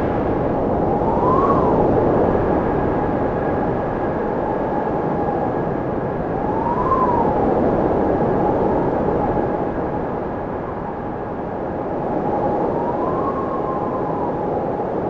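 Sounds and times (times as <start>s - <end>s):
gusty wind on microphone: 0.0s - 15.0s.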